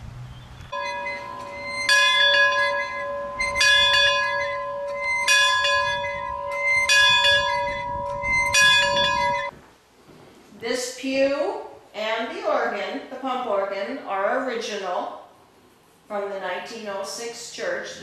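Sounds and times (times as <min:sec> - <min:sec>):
bell tolling: 0:00.8 - 0:09.5.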